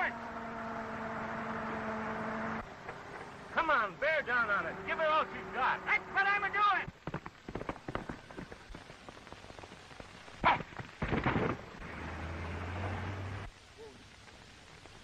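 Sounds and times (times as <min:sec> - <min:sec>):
car engine running: 0:00.0 - 0:07.6
film soundtrack hiss: 0:00.0 - 0:15.0.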